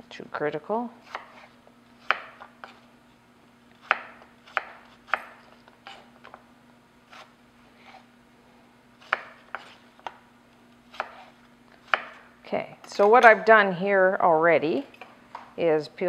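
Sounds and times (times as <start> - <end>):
knife chopping on wooden board: 1.0 - 2.8, 3.8 - 6.4, 9.0 - 10.1, 10.9 - 12.2.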